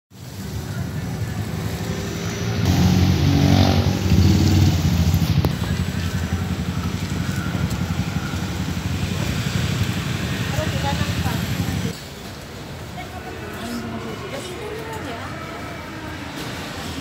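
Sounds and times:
motorcycle engine running: 0:02.7 - 0:11.9.

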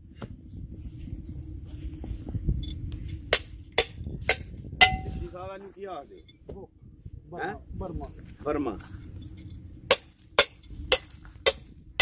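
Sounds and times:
auger digging rumble: 0:00.0 - 0:05.6, 0:07.9 - 0:12.0
sharp metallic clinks: 0:09.2 - 0:11.7.

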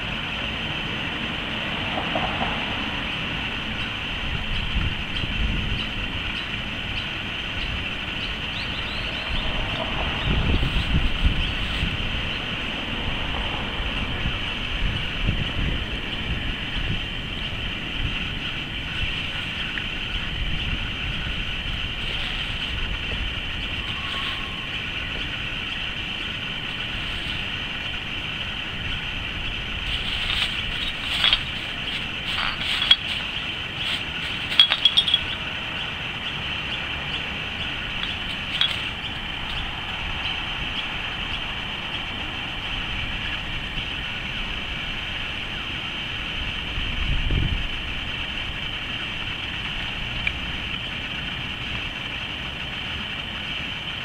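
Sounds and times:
steady high drone: 0:02.6 - 0:46.5
bird foraging in plastic garbage: 0:29.7 - 0:35.5.

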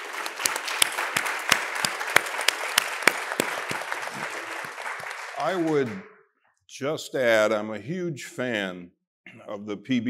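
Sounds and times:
audience applause: 0:00.0 - 0:06.1
close hands clapping sharply: 0:00.0 - 0:06.1.

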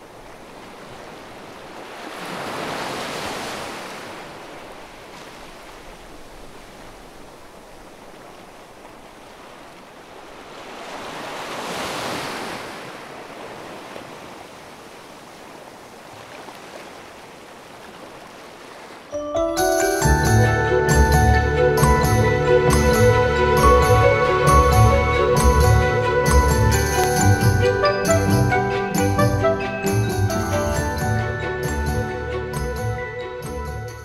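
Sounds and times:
waves breaking on a beach: 0:00.0 - 0:19.2.

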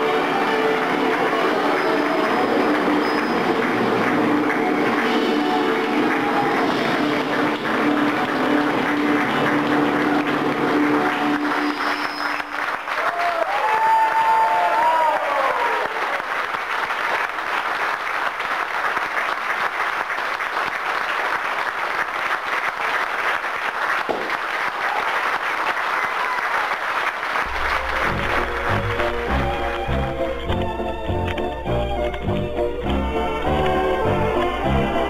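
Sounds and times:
audience applauding: 0:00.0 - 0:35.0
held notes of music: 0:27.5 - 0:35.0.

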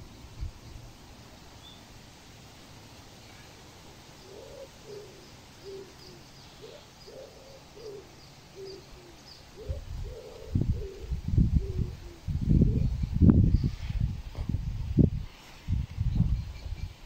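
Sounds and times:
faint steady hiss: 0:00.0 - 0:17.0
soft cooing calls: 0:04.2 - 0:13.0.

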